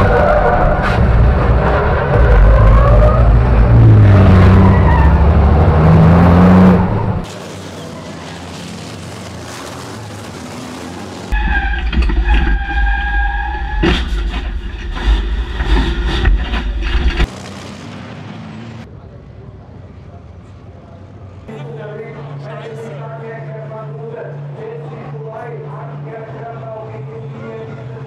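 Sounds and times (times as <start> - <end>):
truck diesel engine revving: 0.0 - 11.7
high engine whine: 0.0 - 20.0.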